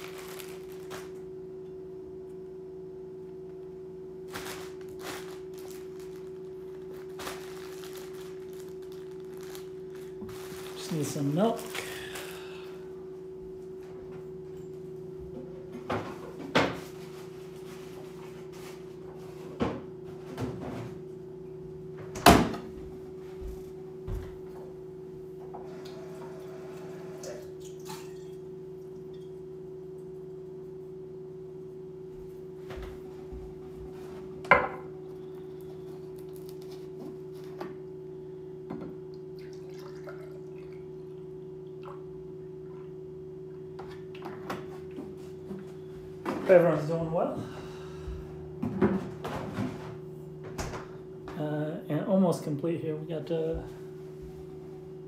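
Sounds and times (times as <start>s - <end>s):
steady low hum: 0.0s - 55.0s
milk pouring into a glass: 39.4s - 40.9s.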